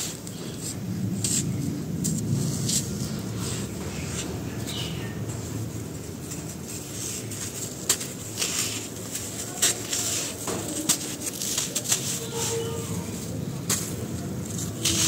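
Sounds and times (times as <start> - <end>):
dry powder sifting: 0.0 - 15.0
chunks cracking and crunching: 7.2 - 12.4.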